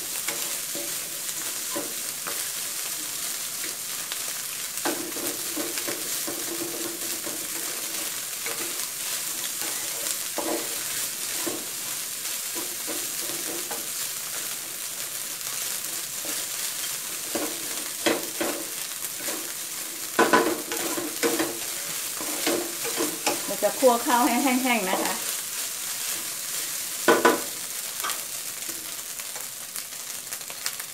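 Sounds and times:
rice sizzling in a wok: 0.0s - 30.9s
wooden spatula scraping pan: 4.8s - 14.5s, 15.9s - 28.2s
spatula knocking against pan: 20.2s - 21.6s, 27.1s - 28.2s.

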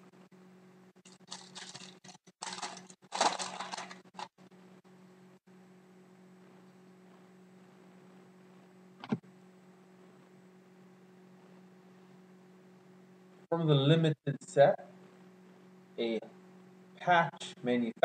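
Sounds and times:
faint steady hum: 0.0s - 18.0s
foil wrapper tearing and crinkling: 1.0s - 4.3s.

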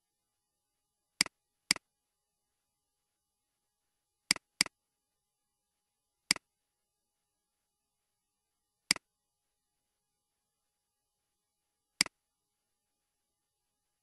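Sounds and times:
computer mouse clicks: 4.3s - 4.8s, 12.0s - 12.2s.

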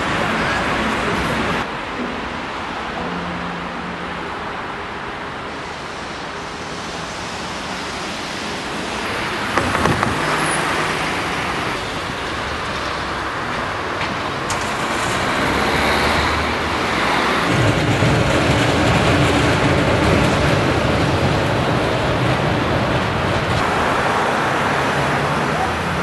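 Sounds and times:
road traffic noise: 0.0s - 26.0s
short knocks: 9.6s - 10.4s.

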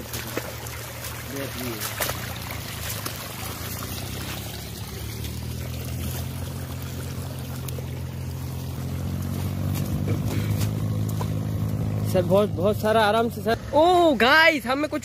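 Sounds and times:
water pouring over mud: 0.0s - 12.2s
low engine hum: 0.0s - 15.0s.

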